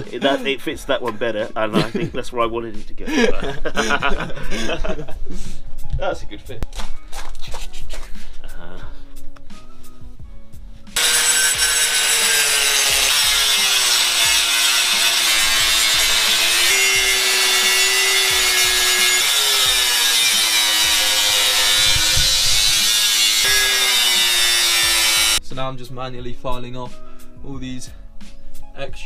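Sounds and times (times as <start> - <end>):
angle grinder grinding metal: 11.0 - 25.4.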